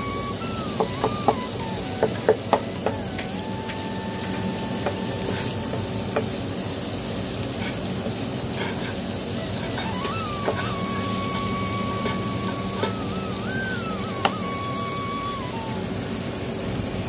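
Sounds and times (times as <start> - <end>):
thin whine: 0.0 - 6.4, 9.3 - 16.2
curry sizzling in a pan: 0.0 - 17.0.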